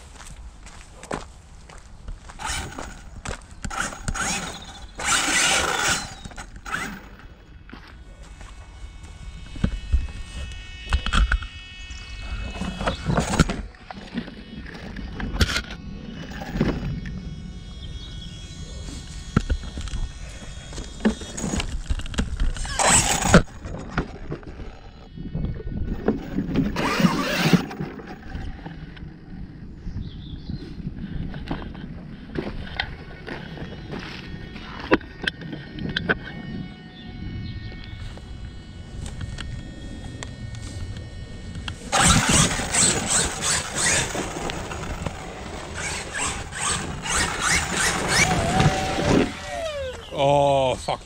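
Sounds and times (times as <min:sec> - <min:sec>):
gears grinding and squealing: 0:02.1 - 0:51.0
tyres spinning in soil: 0:02.2 - 0:07.2, 0:20.9 - 0:25.0, 0:25.9 - 0:28.8, 0:41.9 - 0:51.0
rc truck motor revving: 0:02.3 - 0:07.5, 0:08.4 - 0:29.1, 0:37.5 - 0:50.8.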